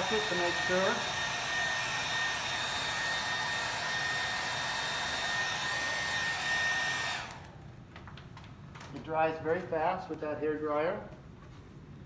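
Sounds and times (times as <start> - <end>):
hair dryer blowing: 0.0 - 7.6.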